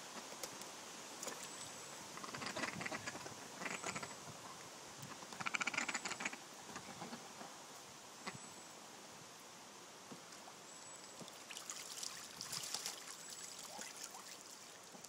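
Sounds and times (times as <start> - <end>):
ducks quacking: 2.2 - 4.1.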